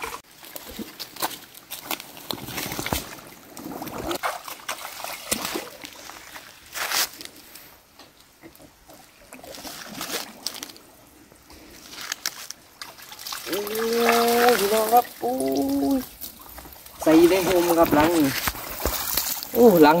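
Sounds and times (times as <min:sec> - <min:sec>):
water splashing around wading legs: 0:00.0 - 0:07.1, 0:11.6 - 0:20.0.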